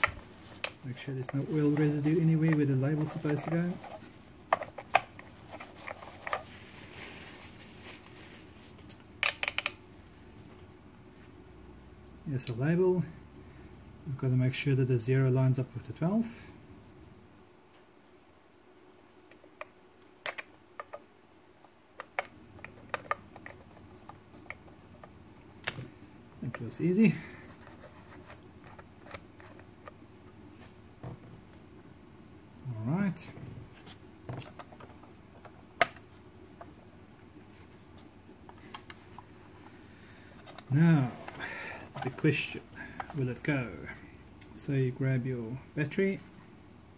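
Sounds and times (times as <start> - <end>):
handling rustle: 0.0 - 8.9.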